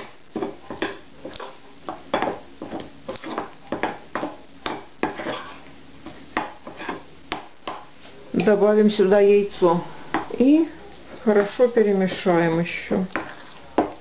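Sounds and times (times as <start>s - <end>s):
metal spoon scraping china bowl: 5.1s - 5.6s.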